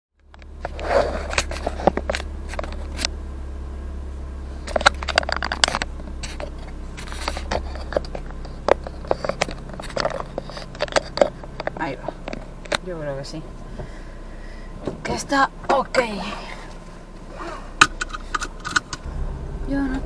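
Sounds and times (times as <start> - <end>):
low hum: 0.2 - 20.0
camera handling rubs and clicks: 0.6 - 3.1, 4.7 - 12.8.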